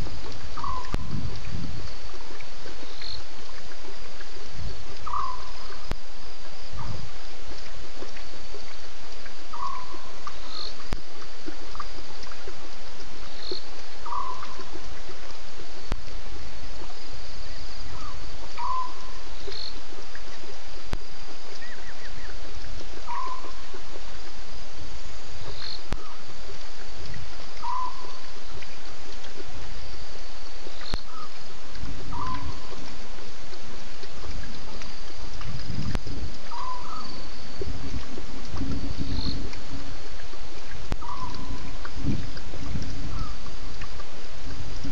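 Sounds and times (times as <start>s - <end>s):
faint high insect trill: 0.0s - 44.9s
steady hiss: 0.0s - 44.9s
short animal calls: 0.6s - 1.1s, 5.0s - 5.7s, 23.1s - 23.7s, 27.6s - 28.2s, 32.1s - 32.8s, 36.5s - 37.3s, 41.0s - 41.7s
higher shorter animal call: 36.5s - 37.2s.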